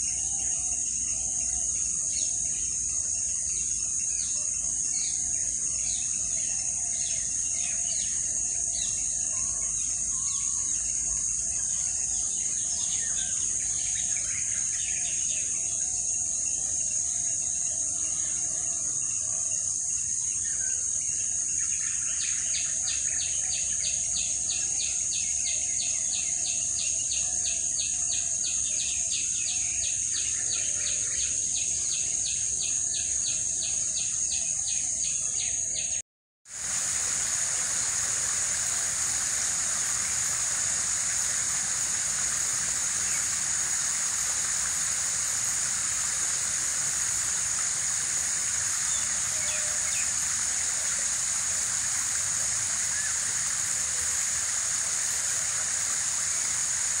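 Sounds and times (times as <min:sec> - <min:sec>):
insects droning: 0:00.0 - 0:57.0
birds chirping: 0:36.6 - 0:54.7.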